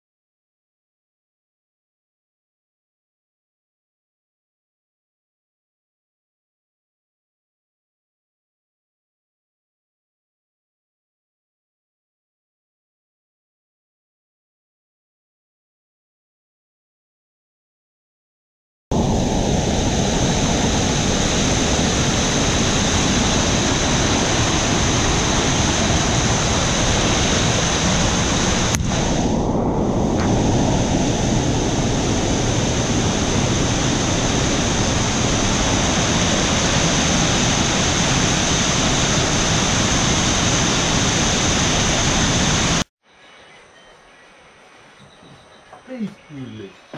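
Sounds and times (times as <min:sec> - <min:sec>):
floodwater rushing over a cascade: 0:19.0 - 0:29.2, 0:30.2 - 0:42.8.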